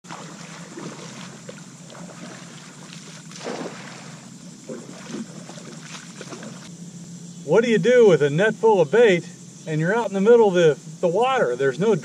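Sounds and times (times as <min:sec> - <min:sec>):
water lapping against a kayak: 0:00.0 - 0:06.7
steady low hum: 0:00.0 - 0:12.0.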